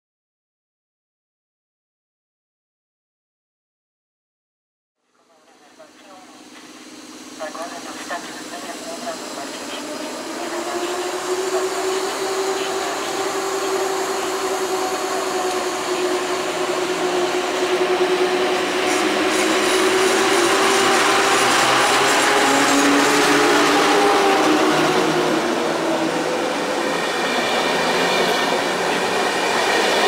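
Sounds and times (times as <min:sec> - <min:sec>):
electric locomotive hum: 0:05.1 - 0:30.0
wheels rumbling on rails: 0:05.2 - 0:30.0.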